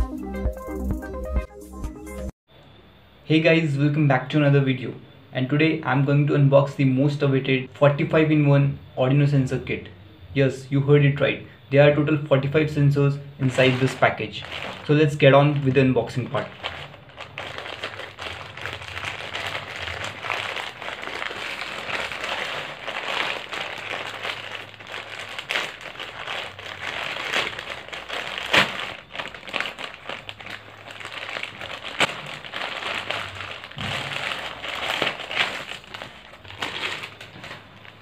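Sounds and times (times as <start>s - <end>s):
plastic bag crinkling and tearing: 13.4s - 38.0s.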